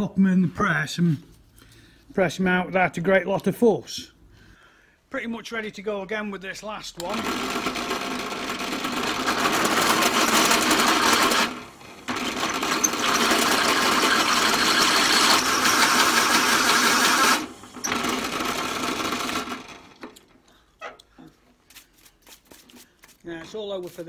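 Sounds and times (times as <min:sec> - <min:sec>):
pillar drill grinding metal: 0:07.0 - 0:20.0.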